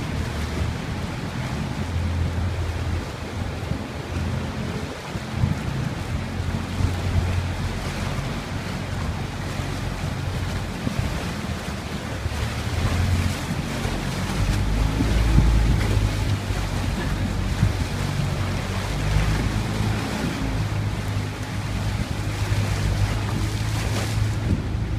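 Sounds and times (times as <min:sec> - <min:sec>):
boat engine humming: 0:00.0 - 0:24.9
sea water sloshing: 0:00.0 - 0:24.9
wind buffeting microphone: 0:00.0 - 0:24.9.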